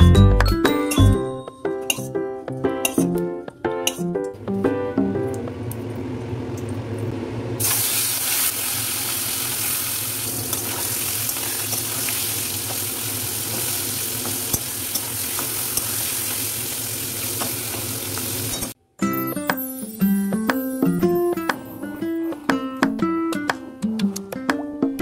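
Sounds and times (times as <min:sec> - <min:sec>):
metal spatula taps: 0:01.8 - 0:02.1
fish sizzling in hot oil: 0:07.6 - 0:18.8.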